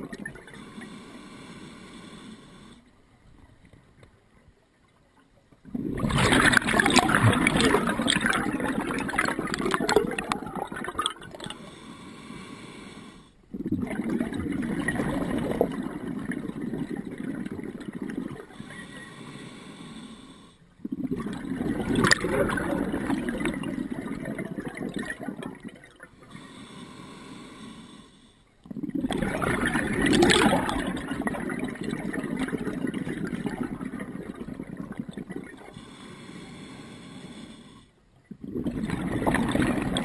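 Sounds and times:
exhaled bubbles: 0.0s - 1.0s, 5.6s - 11.8s, 13.5s - 19.0s, 20.7s - 26.4s, 28.6s - 36.0s, 38.2s - 40.0s
diver breathing through regulator: 0.4s - 2.9s, 11.3s - 13.7s, 18.1s - 21.2s, 26.1s - 28.6s, 35.5s - 40.0s.

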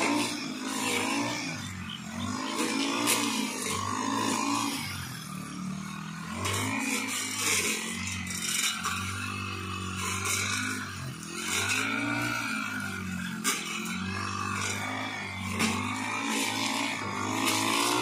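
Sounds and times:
blade swishing through grass: 0.0s - 4.8s
brush cutter engine running: 0.0s - 18.0s.

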